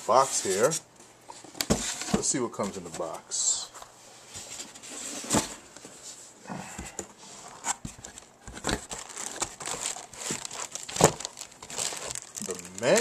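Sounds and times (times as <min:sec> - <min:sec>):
cardboard and paper rustling: 0:07.2 - 0:13.0.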